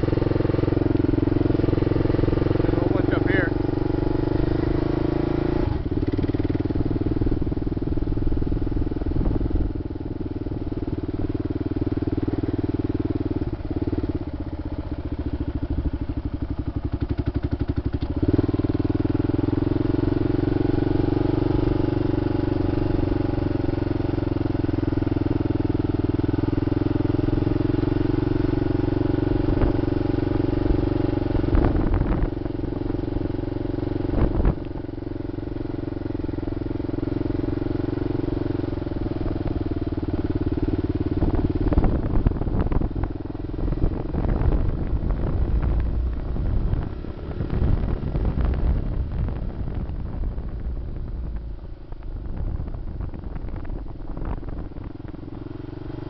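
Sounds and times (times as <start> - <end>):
motorcycle engine running: 0.0 - 56.0.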